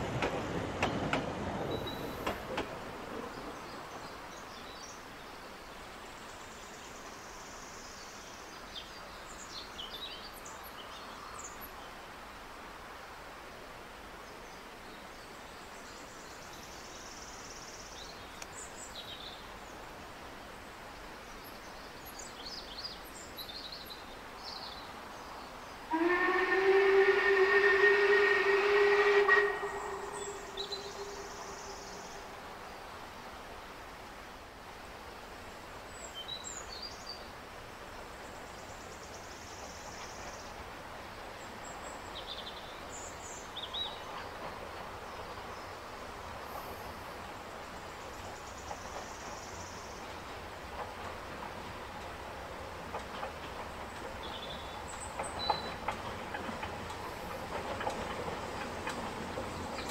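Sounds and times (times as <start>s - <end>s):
steam locomotive whistle: 25.9s - 31.7s.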